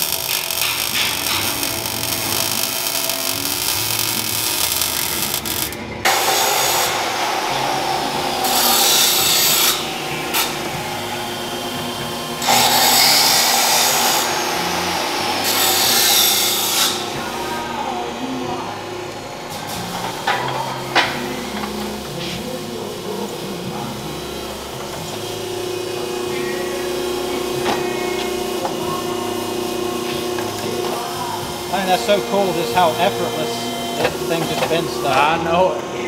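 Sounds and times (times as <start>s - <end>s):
welding crackle: 0.0s - 6.9s
hydraulic tube bender running: 0.0s - 36.0s.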